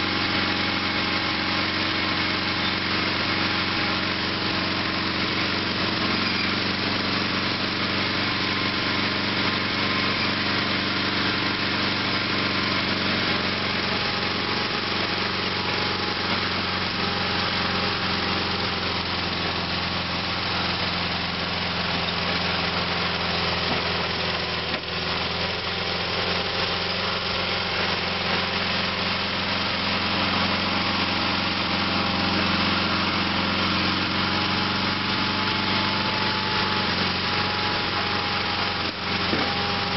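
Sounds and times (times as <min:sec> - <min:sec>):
dozer blade pushing dirt: 0:00.0 - 0:39.9
tractor engine running: 0:00.0 - 0:39.9.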